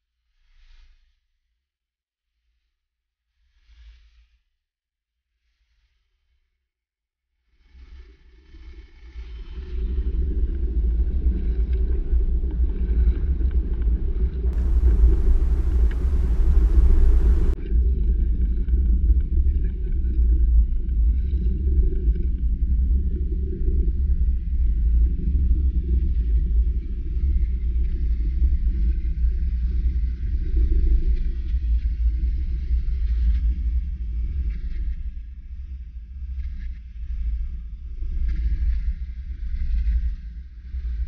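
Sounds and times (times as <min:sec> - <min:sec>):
hiss: 0:14.6 - 0:17.6
wind buffeting microphone: 0:14.6 - 0:17.6.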